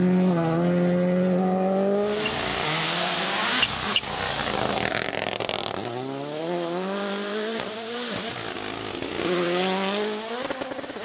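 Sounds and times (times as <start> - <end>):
rally car engine at high revs: 0.0 - 11.0.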